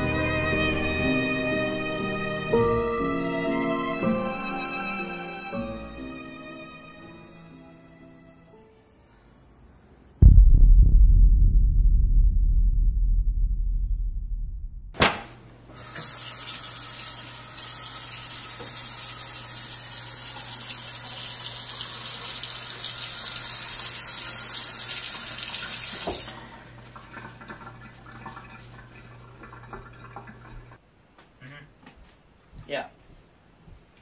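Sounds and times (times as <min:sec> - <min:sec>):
low droning hum: 0:10.2 - 0:15.0
faucet running into metal sink: 0:15.8 - 0:26.4, 0:27.0 - 0:30.8.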